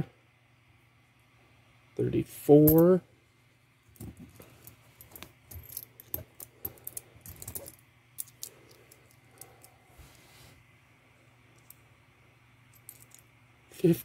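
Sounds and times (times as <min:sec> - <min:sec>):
coins clicking and clinking: 0:04.6 - 0:09.8, 0:12.7 - 0:13.3.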